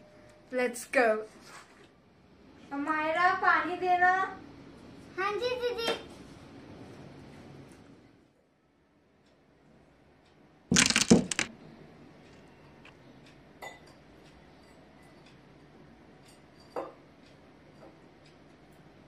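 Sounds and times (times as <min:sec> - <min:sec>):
clatter of hard objects: 0:10.7 - 0:11.5.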